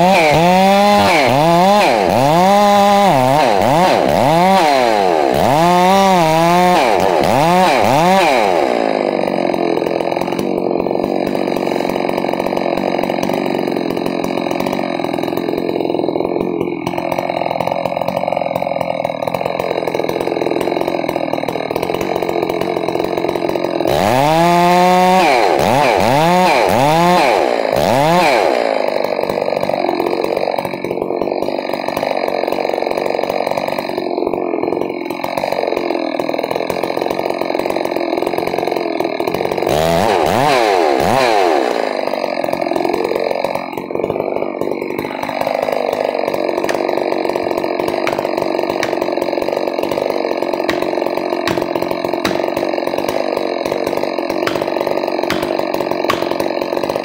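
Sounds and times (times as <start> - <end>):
chainsaw cutting tree trunk: 0.0 - 57.0.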